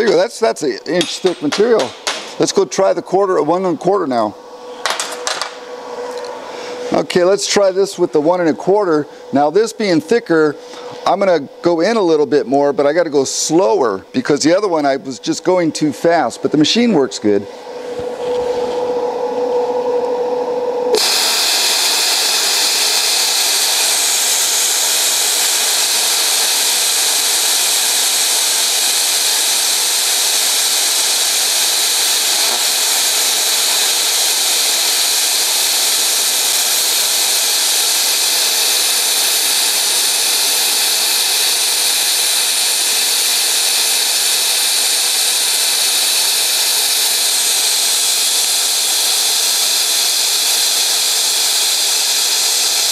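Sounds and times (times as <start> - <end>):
plasma cutter hissing: 0.9 - 2.8, 20.9 - 52.9
plasma cutter steady tone: 20.9 - 52.9.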